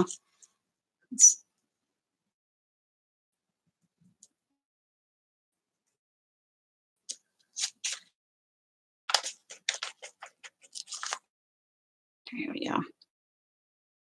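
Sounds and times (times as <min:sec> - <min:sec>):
hands scuffing craft supplies: 0:09.1 - 0:11.2.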